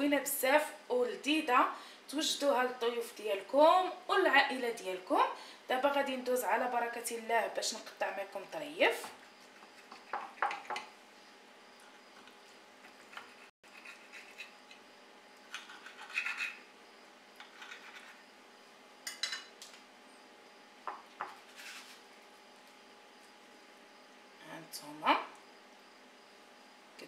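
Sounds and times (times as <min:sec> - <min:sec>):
knife cutting and scraping plate: 0:13.0 - 0:14.6, 0:15.5 - 0:16.6, 0:21.2 - 0:22.0.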